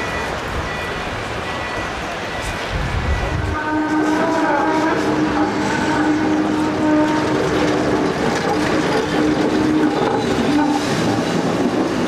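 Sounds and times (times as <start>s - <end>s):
electric tram hum: 0.0s - 12.0s
wheels rumbling and clicking on rails: 0.0s - 12.0s.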